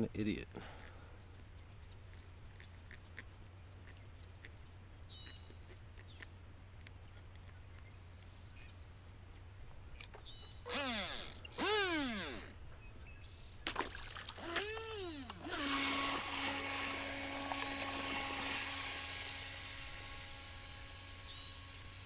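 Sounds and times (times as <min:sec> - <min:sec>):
electric motor whine: 0:10.2 - 0:12.8, 0:14.4 - 0:22.0.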